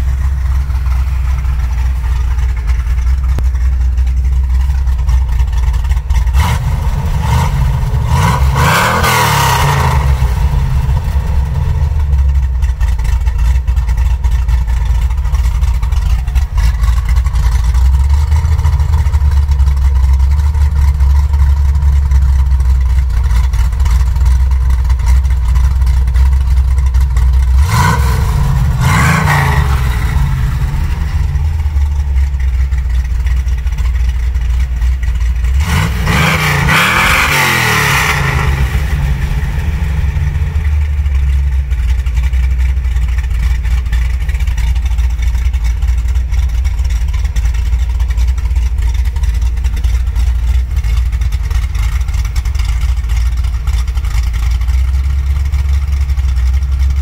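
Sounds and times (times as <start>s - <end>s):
car engine idling: 0.0s - 57.0s
engine revving: 5.8s - 13.2s, 27.2s - 33.0s, 35.3s - 42.4s.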